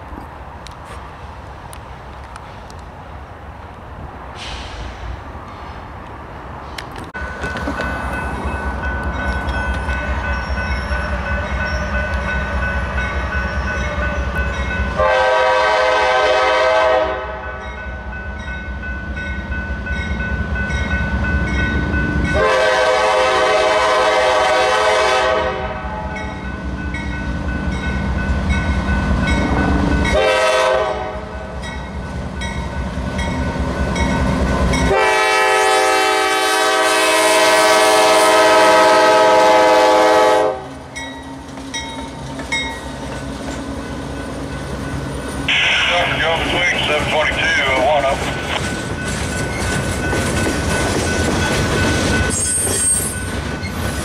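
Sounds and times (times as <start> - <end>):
locomotive air horn blasts: 15.0 - 17.6, 22.4 - 25.9, 30.1 - 31.3, 34.9 - 40.7
diesel engine rumbling: 42.2 - 51.8.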